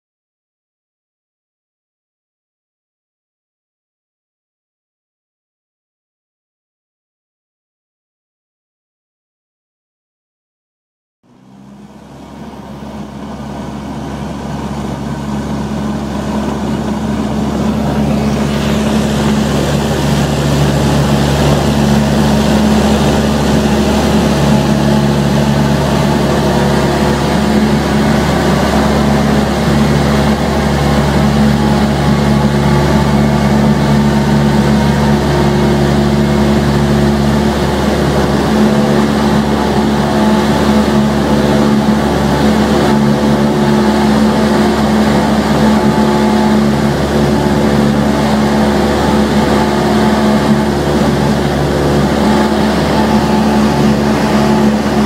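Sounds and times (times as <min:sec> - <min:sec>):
light aircraft engine droning: 0:11.3 - 0:55.0.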